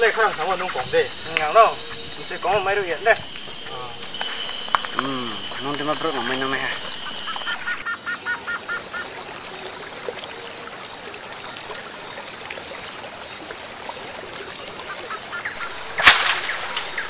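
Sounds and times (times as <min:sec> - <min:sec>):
faint bird calls: 0:00.0 - 0:09.2, 0:14.6 - 0:17.0
stream trickling over rocks: 0:00.0 - 0:17.0
sharp loud impact: 0:16.0 - 0:17.0.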